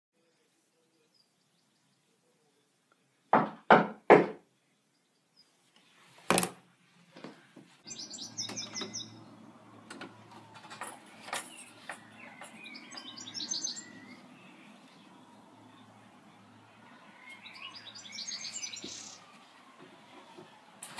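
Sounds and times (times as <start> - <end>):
birds chirping: 0.2 - 3.4, 4.5 - 6.2, 7.1 - 20.9
knocking on wooden door: 3.4 - 4.4
low outdoor hum: 4.4 - 20.9.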